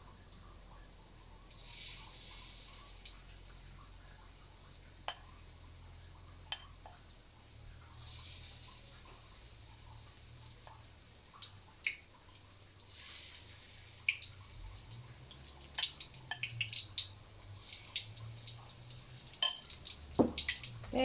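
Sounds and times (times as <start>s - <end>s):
faint low hum: 0.0s - 21.0s
oil crackling and popping: 8.2s - 21.0s.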